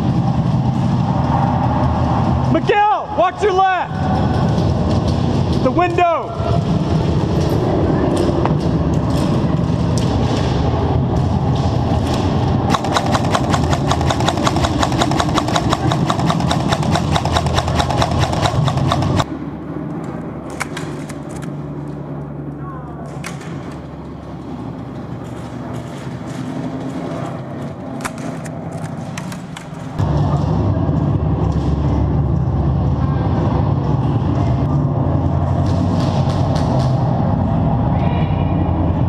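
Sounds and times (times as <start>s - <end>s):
steady low rumble: 0.0s - 39.0s
airsoft rifle full-auto burst: 12.7s - 19.2s.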